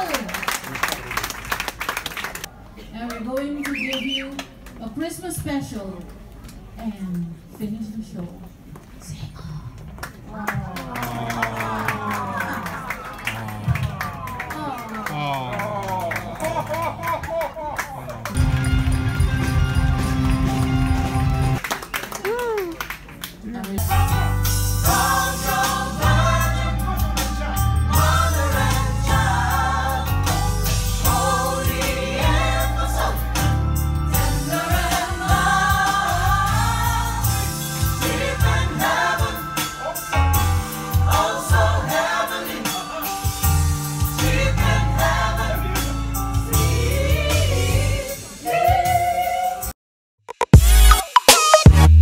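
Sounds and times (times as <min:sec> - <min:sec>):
bass line: 0:23.8 - 0:39.5, 0:50.3 - 0:52.0
gospel choir singing: 0:24.0 - 0:49.7.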